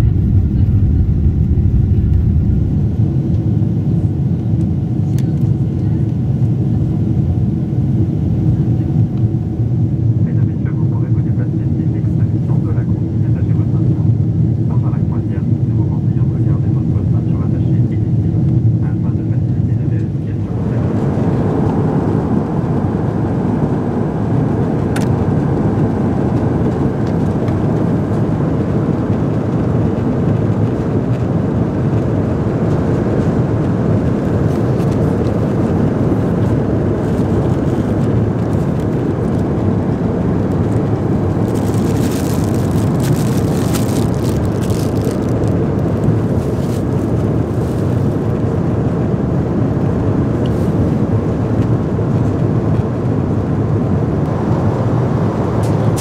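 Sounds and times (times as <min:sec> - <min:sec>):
airliner cabin noise: 0:00.0 - 0:56.0
plastic wrapping crinkling: 0:41.4 - 0:48.1.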